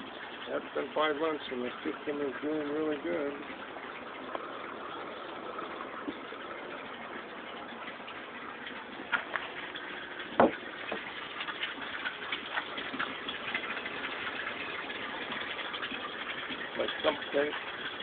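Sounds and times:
ticking water drips: 0:00.0 - 0:18.0
water running and splashing: 0:00.0 - 0:18.0
sharp knock: 0:10.4 - 0:10.6.

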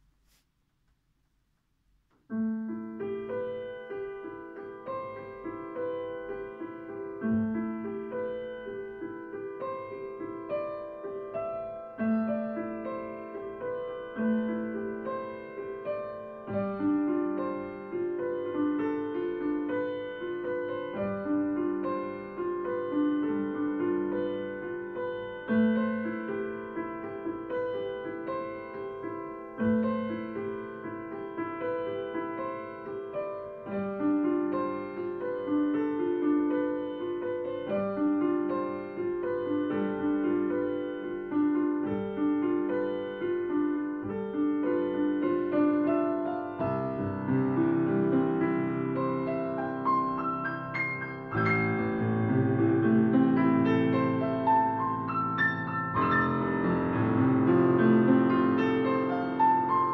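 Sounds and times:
solo grand piano: 0:00.0 - 0:59.9.

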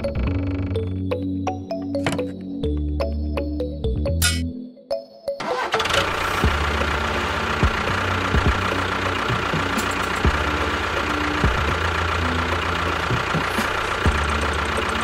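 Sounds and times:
tractor engine chugging: 0:05.4 - 0:15.0.

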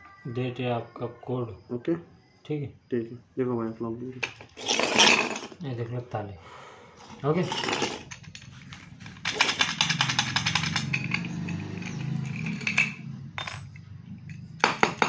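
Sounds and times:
padlock clicking and rattling: 0:08.2 - 0:12.8.

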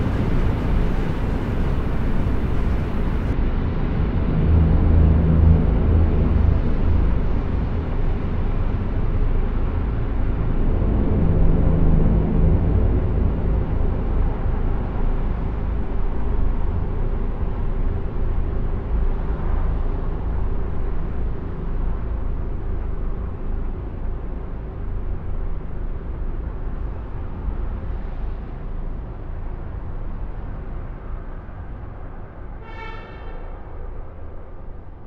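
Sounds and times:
noisy hiss: 0:00.0 - 0:03.4
steady low rumble: 0:00.0 - 0:32.6.

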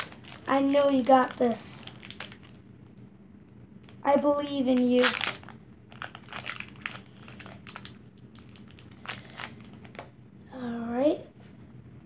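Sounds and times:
foil wrapper crinkling: 0:00.0 - 0:02.6, 0:03.8 - 0:10.1.

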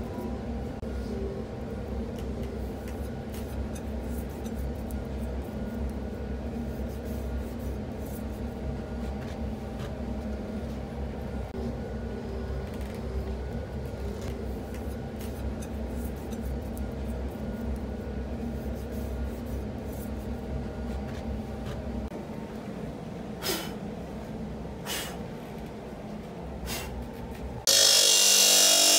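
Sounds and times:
workshop machine hum: 0:00.0 - 0:28.9.

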